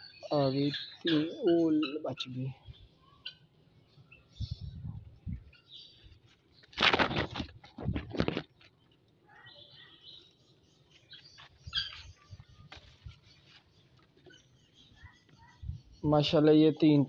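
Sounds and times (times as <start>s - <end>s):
birds chirping: 0.0s - 17.0s
loud rustling bursts: 6.6s - 8.5s.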